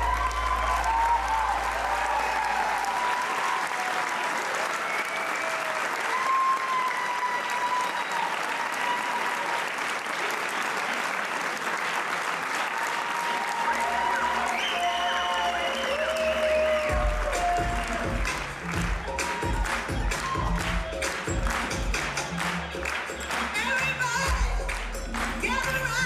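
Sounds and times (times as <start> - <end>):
music: 0.0 - 2.3, 13.7 - 26.0
crowd applause: 0.0 - 26.0.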